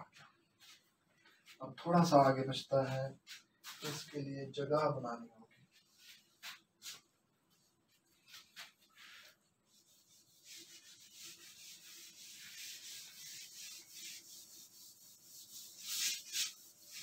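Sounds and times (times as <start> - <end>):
duster rubbing on whiteboard: 7.9 - 17.0.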